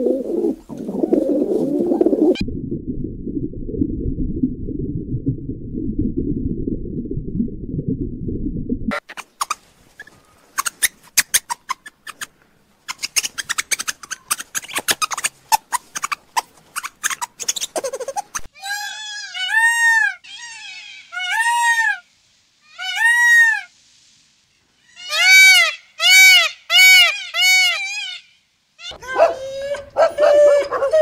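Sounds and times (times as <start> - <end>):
peacock calling: 16.8 - 23.7, 24.8 - 31.0.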